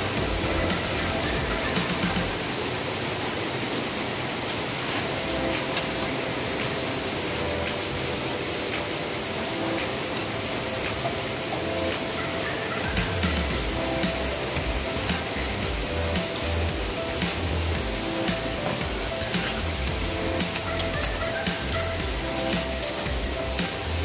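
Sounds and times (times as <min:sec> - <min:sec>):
stovetop cooking hiss: 0:00.0 - 0:24.0.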